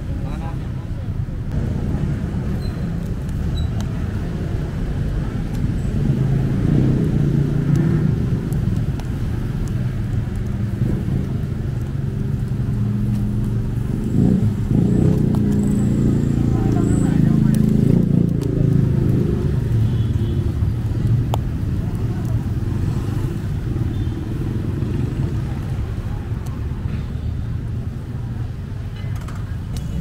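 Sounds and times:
traffic passing: 0:00.0 - 0:30.0.

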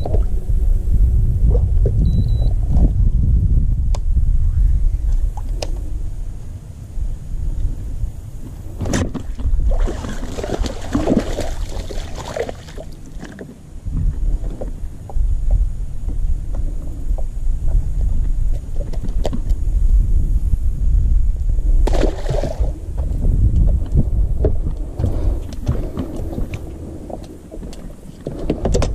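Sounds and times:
steady low rumble: 0:00.0 - 0:28.9
fish thrashing and splashing: 0:08.8 - 0:13.4, 0:21.9 - 0:22.8.

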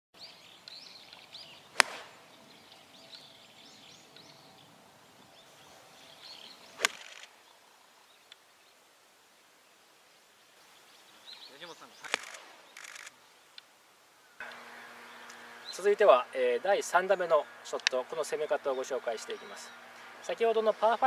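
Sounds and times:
birds chirping: 0:00.2 - 0:21.0
golf club striking ball: 0:01.8 - 0:02.2, 0:06.8 - 0:07.2.

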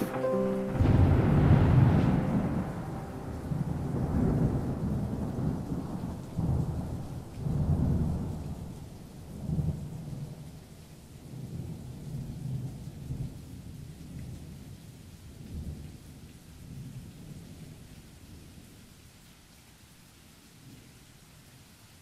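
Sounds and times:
rain hissing: 0:00.0 - 0:10.0
rolling thunder: 0:00.6 - 0:08.7.

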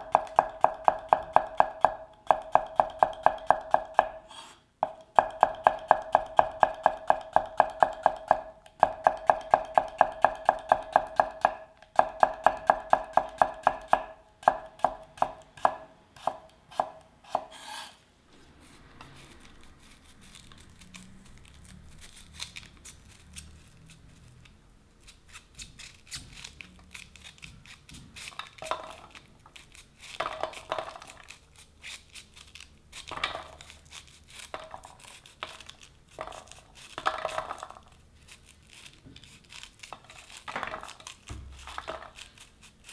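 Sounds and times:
knife chopping on cutting board: 0:05.2 - 0:17.9
knife cutting corn kernels: 0:19.1 - 0:42.9.

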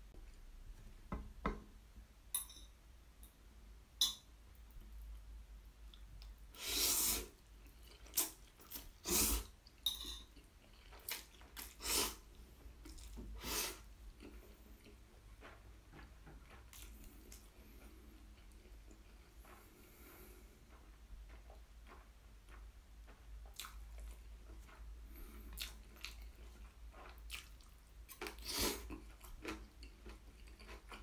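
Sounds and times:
person slurping noodles: 0:06.6 - 0:07.4, 0:08.0 - 0:09.5, 0:11.6 - 0:12.3, 0:13.4 - 0:13.9, 0:28.2 - 0:29.0
quiet chewing: 0:07.4 - 0:09.0, 0:09.6 - 0:31.0.

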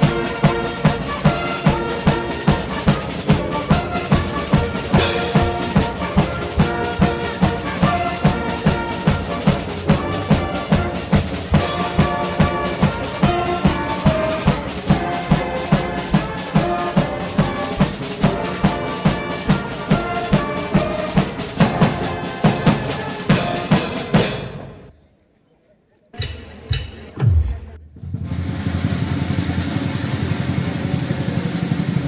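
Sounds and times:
music with fast drum beat: 0:00.0 - 0:24.6.

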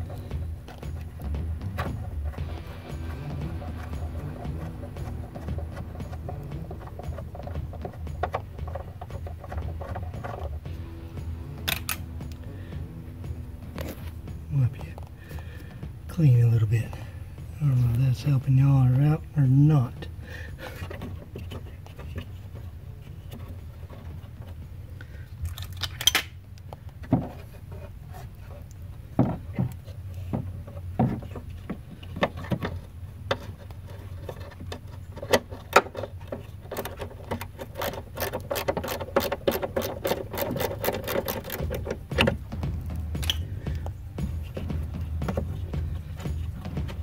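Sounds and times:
steady low hum: 0:00.0 - 0:47.0
clicks and knocks of handling: 0:25.4 - 0:47.0
fast run of clicks: 0:33.3 - 0:47.0.

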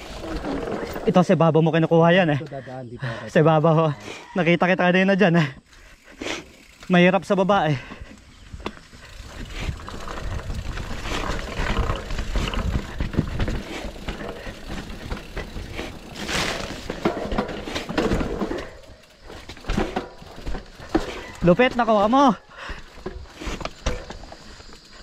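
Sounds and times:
bike rattling clicks and knocks: 0:00.0 - 0:01.4, 0:05.7 - 0:25.0
bike tyre noise: 0:00.0 - 0:02.4, 0:04.9 - 0:25.0
wind rumble on microphone: 0:09.3 - 0:13.8.

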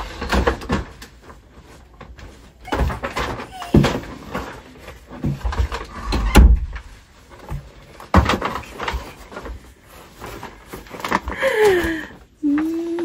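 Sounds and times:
shopping bags rustling: 0:00.0 - 0:06.0, 0:06.7 - 0:13.0
door opening: 0:05.4 - 0:07.0.

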